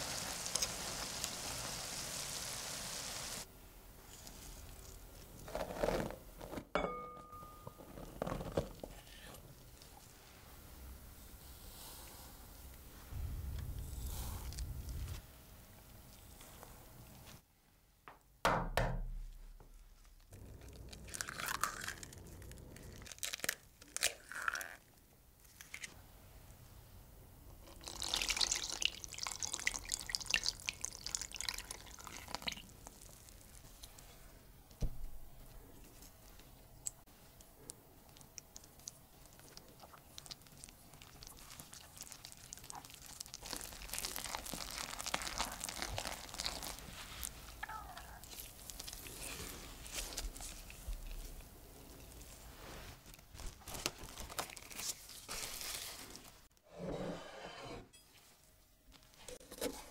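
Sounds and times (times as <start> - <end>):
milk pouring: 20.4 - 23.2, 27.7 - 33.4.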